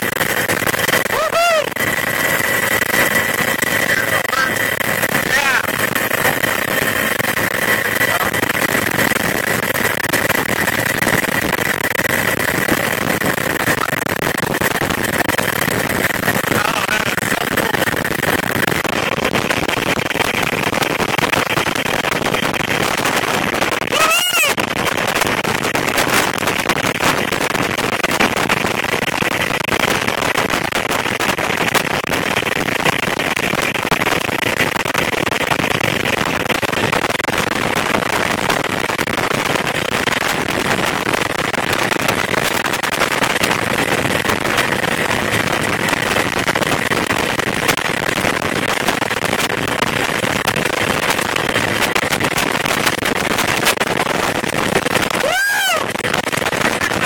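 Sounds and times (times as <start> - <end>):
helicopter rotor and engine: 0.0 - 18.6
faint steady whine: 0.0 - 27.0.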